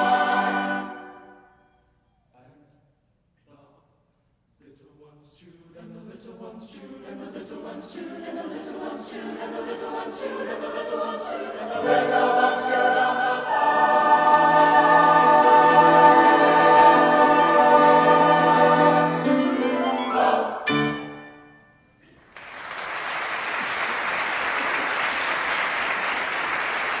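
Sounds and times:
choir singing: 0.0 - 1.8, 5.4 - 21.6
audience applause: 22.2 - 27.0.

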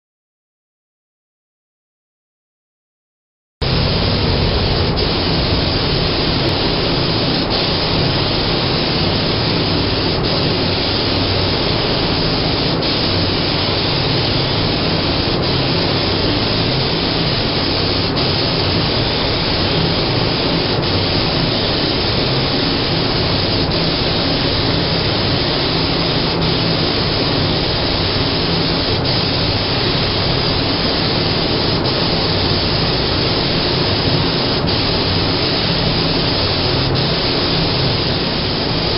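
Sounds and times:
low hum: 3.6 - 21.8
spray gun hissing: 3.6 - 38.9.

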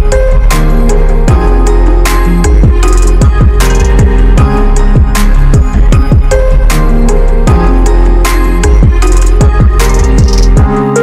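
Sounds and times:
electronic music with heavy beat: 0.0 - 11.0.

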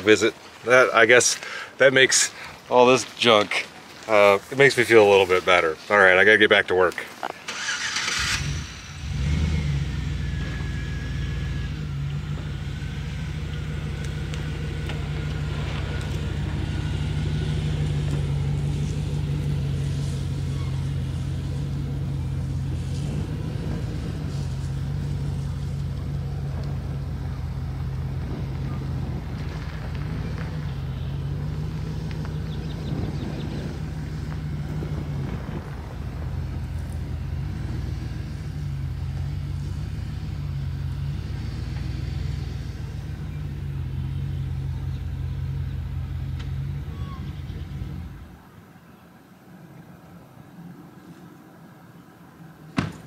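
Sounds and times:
pickup truck engine running: 7.5 - 48.4.

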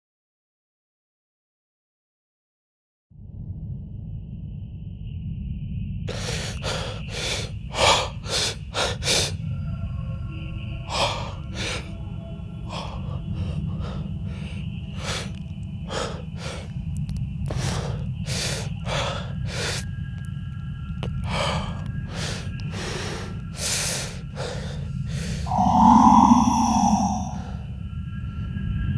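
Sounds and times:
man breathing hard: 6.1 - 9.4, 10.8 - 12.0, 12.6 - 16.8, 17.4 - 19.9, 21.0 - 27.8
low musical drone: 6.1 - 28.9.

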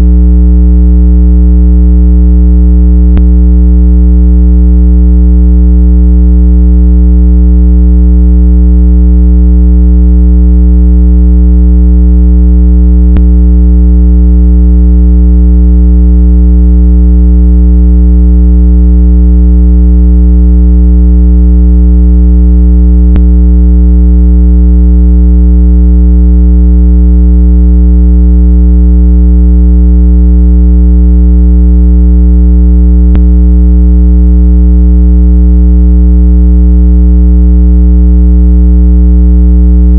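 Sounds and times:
buzzy synthesized low tone: 3.1 - 3.4, 13.1 - 13.4, 23.1 - 23.3.

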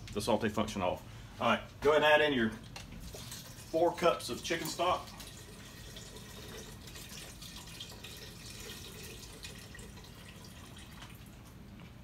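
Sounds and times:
liquid pouring into metal pot: 3.0 - 11.3.

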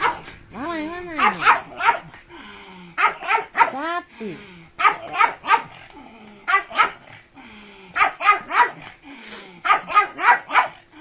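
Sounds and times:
dog barking: 0.0 - 0.3, 1.2 - 2.2, 3.0 - 3.8, 4.8 - 5.8, 6.5 - 7.1, 8.0 - 8.9, 9.6 - 10.8.

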